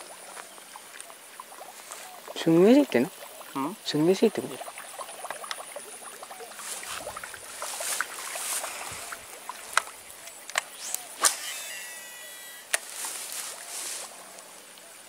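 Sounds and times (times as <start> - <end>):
reel spool whine: 0.0 - 15.0
rustling: 6.6 - 9.9, 12.6 - 14.5
fishing rod cast swish: 9.8 - 13.7.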